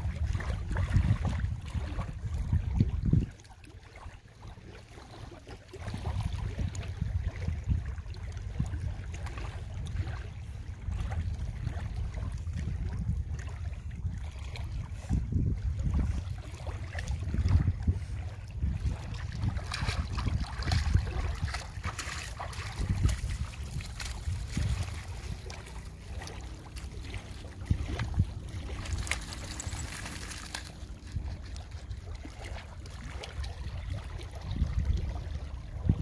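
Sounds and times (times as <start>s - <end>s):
wind noise on microphone: 0.0s - 4.1s, 5.2s - 36.0s
water splashing and dripping: 15.8s - 35.9s.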